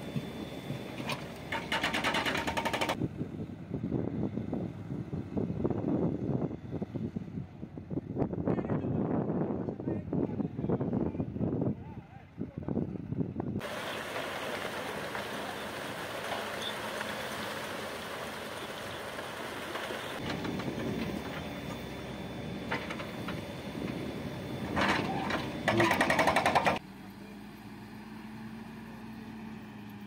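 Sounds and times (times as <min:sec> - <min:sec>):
heavy machinery engine: 0:00.0 - 0:05.4, 0:13.6 - 0:30.0
loud fast rattle: 0:01.5 - 0:03.0, 0:25.7 - 0:26.8
wind rush: 0:03.0 - 0:13.6
metal clanks and knocks: 0:24.7 - 0:26.8.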